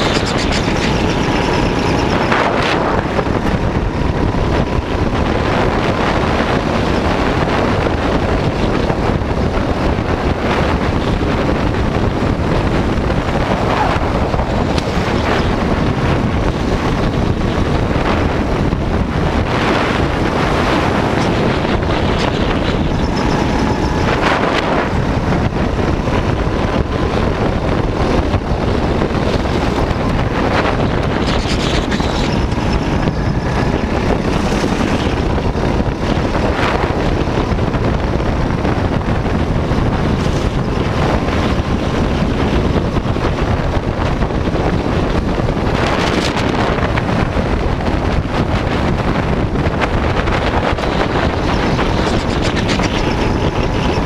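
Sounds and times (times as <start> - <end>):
go-kart engine running: 0.0 - 54.0
wind buffeting microphone: 0.0 - 54.0.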